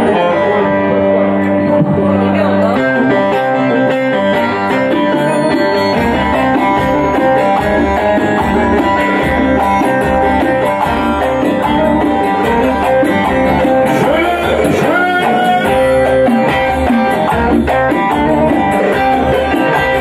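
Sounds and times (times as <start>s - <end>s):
low bass beat: 0.0s - 4.1s
band accompanying: 0.0s - 20.0s
plucked saz melody: 0.0s - 20.0s.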